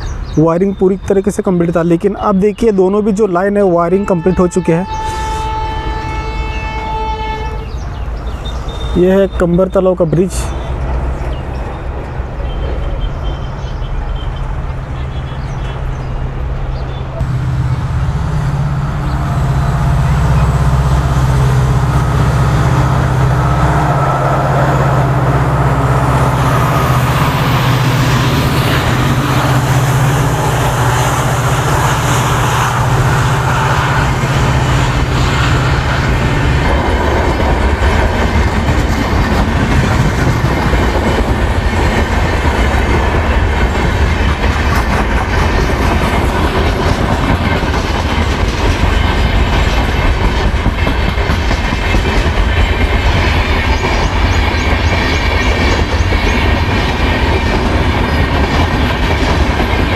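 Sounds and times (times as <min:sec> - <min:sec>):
diesel locomotive engine drone: 0:00.0 - 0:59.9
train wheels clicking over rail joints: 0:25.5 - 0:59.9.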